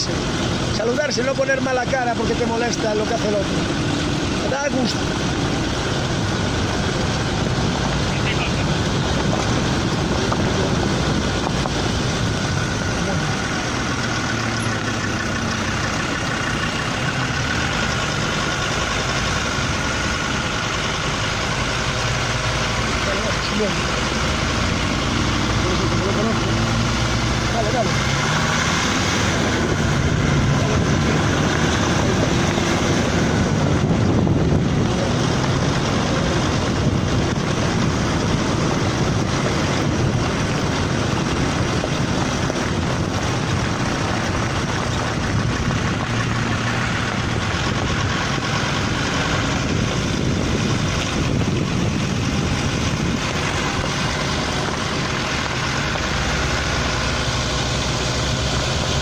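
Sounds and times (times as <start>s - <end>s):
vehicle engine and tyre noise: 0.0s - 59.0s
wind on microphone: 5.0s - 15.6s, 24.0s - 59.0s.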